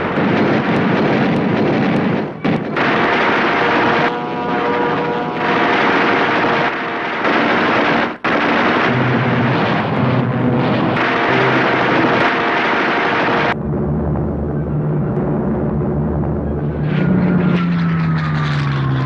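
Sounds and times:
machine-gun fire: 0:00.0 - 0:13.6
aircraft engines running: 0:00.0 - 0:19.0.

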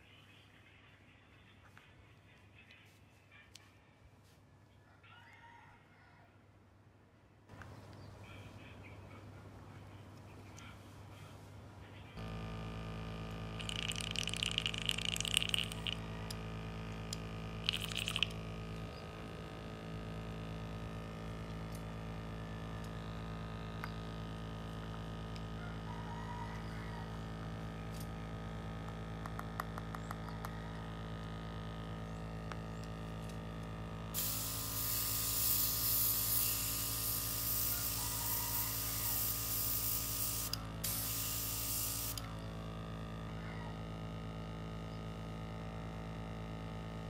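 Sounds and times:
compressor humming: 0:09.0 - 0:47.0
airbrush spraying hiss: 0:34.2 - 0:42.3.

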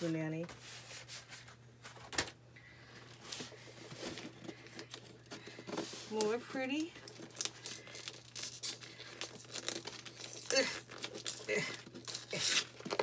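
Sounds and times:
wrapping paper rustling and tearing: 0:03.1 - 0:13.0.

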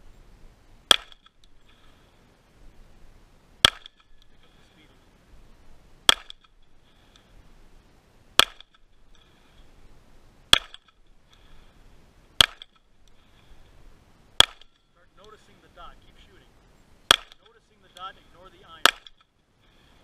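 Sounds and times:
pistol shots: 0:17.1 - 0:17.6.

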